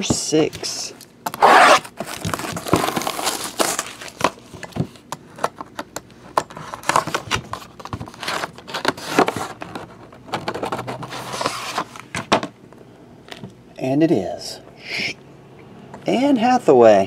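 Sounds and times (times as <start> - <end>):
plastic wrap crinkling: 1.3 - 5.0.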